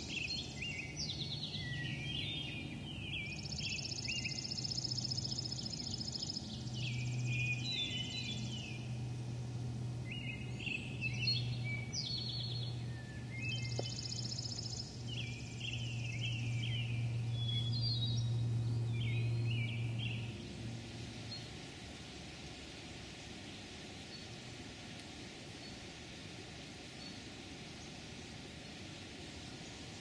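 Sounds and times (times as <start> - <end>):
songbirds singing: 0.0 - 30.0
steady low hum: 0.0 - 30.0.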